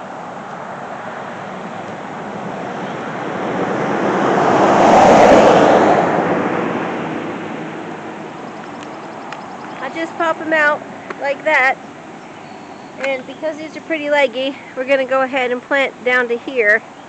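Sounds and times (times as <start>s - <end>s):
car driving past: 0.0s - 11.2s.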